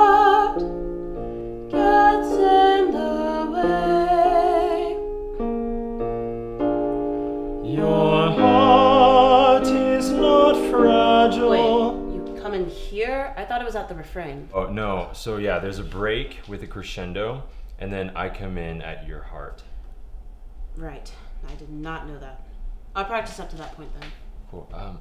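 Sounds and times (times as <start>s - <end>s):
woman singing with vibrato: 0.0s - 0.6s, 1.7s - 5.0s, 7.7s - 13.2s
piano accompaniment: 0.0s - 13.4s.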